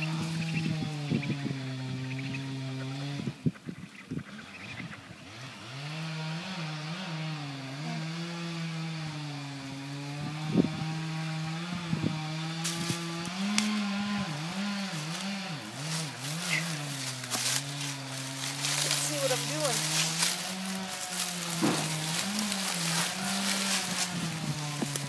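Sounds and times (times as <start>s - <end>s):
chainsaw running: 0.0s - 3.5s, 4.2s - 25.0s
sharp knocks: 21.5s - 22.1s.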